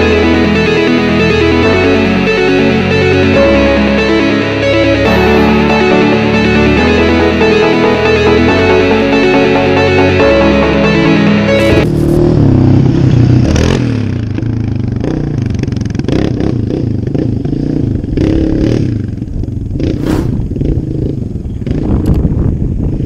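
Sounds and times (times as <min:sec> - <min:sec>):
quad engines revving: 0:11.5 - 0:22.2.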